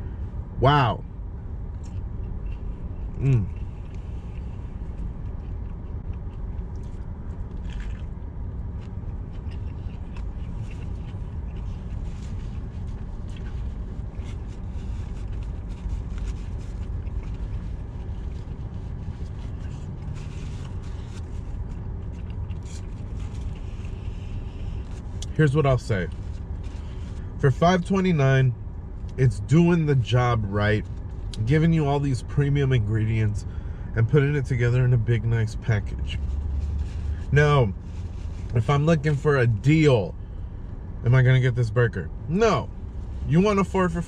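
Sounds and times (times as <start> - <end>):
car interior rumble: 0.0 - 44.0
chewing: 1.8 - 8.2, 8.8 - 17.7, 19.4 - 25.3.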